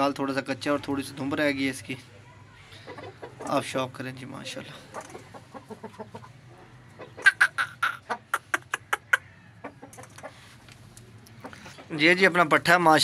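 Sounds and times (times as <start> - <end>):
chicken clucking: 2.6 - 10.7.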